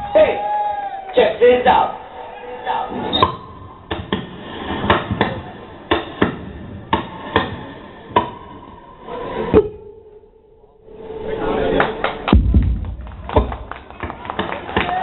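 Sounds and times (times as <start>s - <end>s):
sharp percussive hits: 10.9s - 13.9s.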